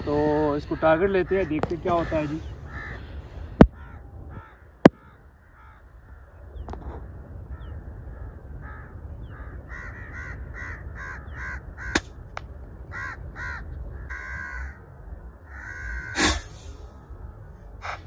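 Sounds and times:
crows cawing: 0.4s - 16.6s
air rifle shot: 11.9s - 12.2s, 16.2s - 16.8s.

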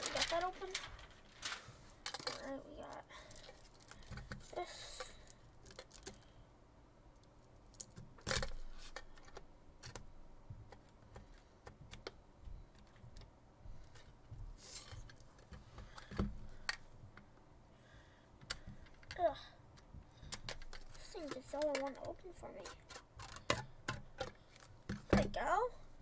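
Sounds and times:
plastic wrapping rustling: 0.0s - 6.4s.

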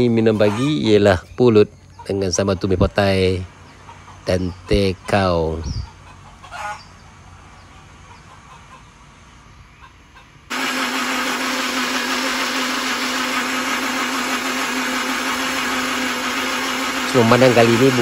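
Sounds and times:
electric blender whirring: 10.5s - 18.0s.

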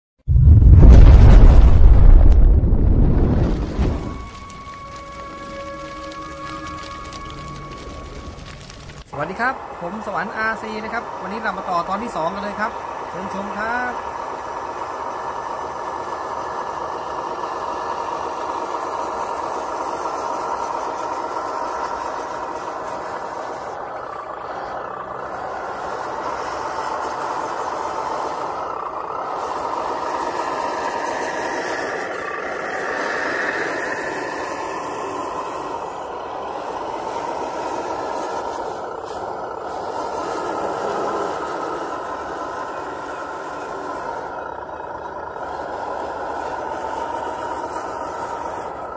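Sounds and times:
toy truck motor whine: 3.4s - 48.9s.

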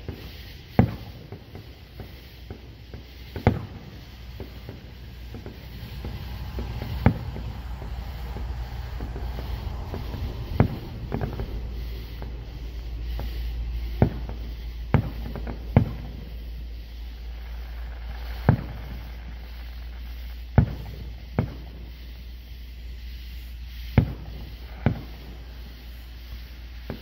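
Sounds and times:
firework shells bursting: 0.0s - 27.0s
low rumble: 2.7s - 18.4s.

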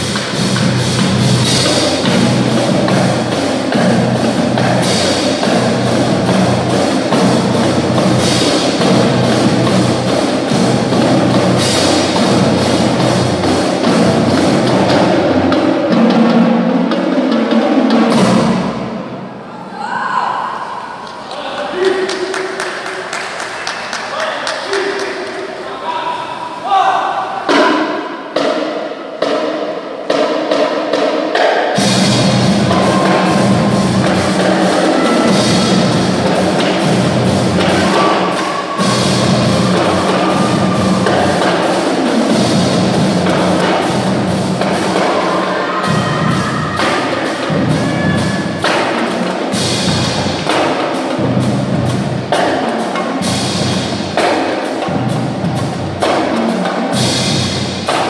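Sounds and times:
bass drums: 0.0s - 16.5s, 31.8s - 56.3s
snare drums: 0.0s - 19.4s, 27.4s - 58.0s
cymbals: 0.0s - 21.1s, 21.7s - 58.0s.

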